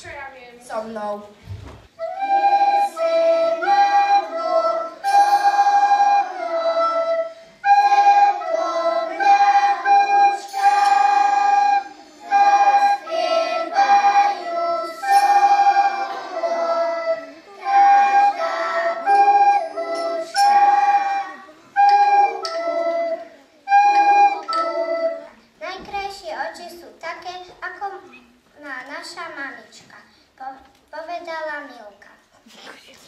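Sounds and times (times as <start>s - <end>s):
children singing: 2.1s - 25.4s.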